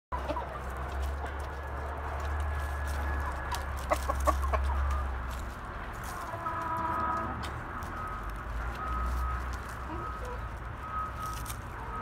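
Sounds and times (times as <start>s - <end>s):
chickens clucking: 0.1s - 7.3s.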